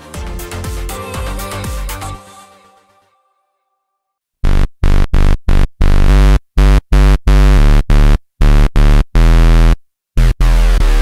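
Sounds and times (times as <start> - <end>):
synthesizer bass line: 4.4 - 11.0.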